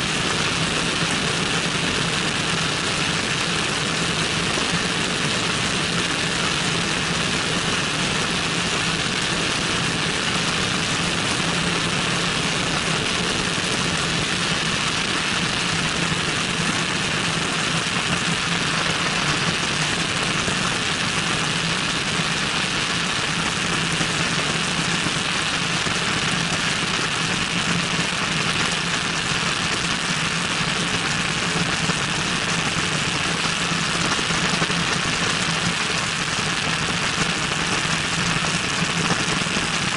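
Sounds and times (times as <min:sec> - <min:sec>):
airflow rushing over microphone: 0:12.0 - 0:22.7
airplane engine droning: 0:16.8 - 0:21.4.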